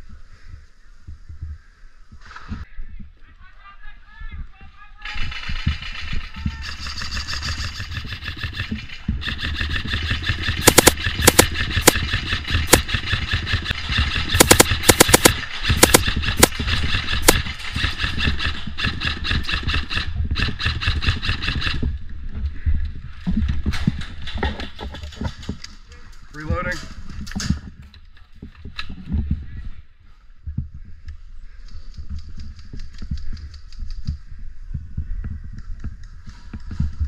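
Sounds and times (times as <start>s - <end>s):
sharp cracks: 5.1s - 21.7s
airsoft gun full-auto buzz: 9.3s - 18.5s.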